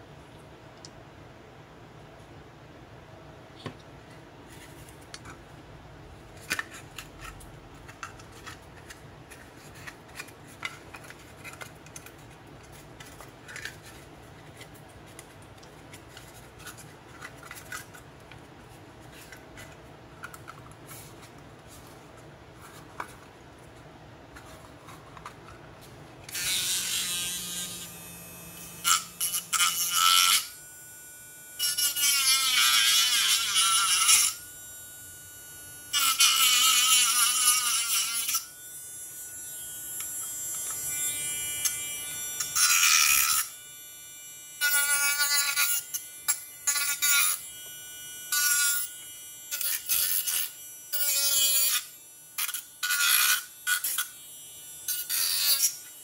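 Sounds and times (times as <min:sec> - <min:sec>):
rotary tool grinding plastic: 0:06.4 - 0:18.0.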